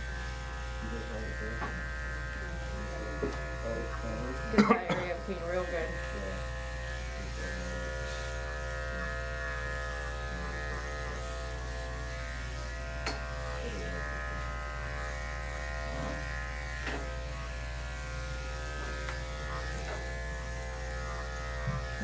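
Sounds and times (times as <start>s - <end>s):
electric clippers humming: 0.0s - 22.0s.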